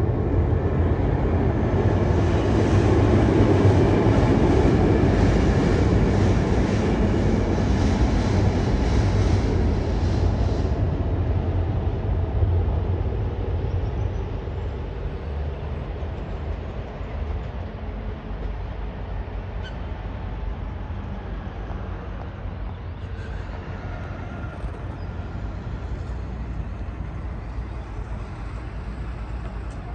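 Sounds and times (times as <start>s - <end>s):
diesel locomotive engine rumble: 0.0s - 29.9s.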